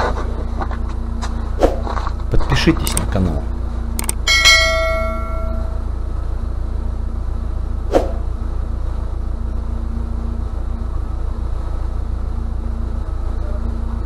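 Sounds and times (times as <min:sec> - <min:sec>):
steady low hum: 0:00.0 - 0:14.0
ringing bell chime: 0:04.2 - 0:05.9.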